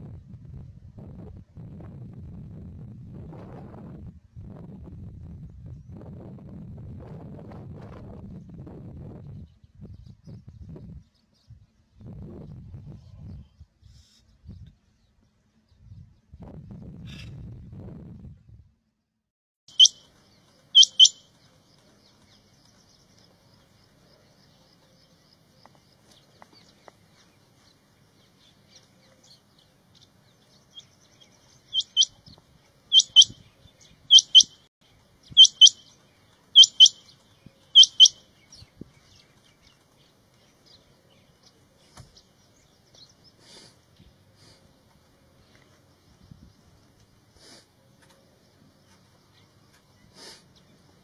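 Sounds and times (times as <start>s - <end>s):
quail calling: 20.8s - 21.2s, 31.8s - 32.2s, 32.9s - 33.3s, 34.1s - 34.5s, 35.3s - 35.8s, 36.6s - 37.0s, 37.8s - 38.2s.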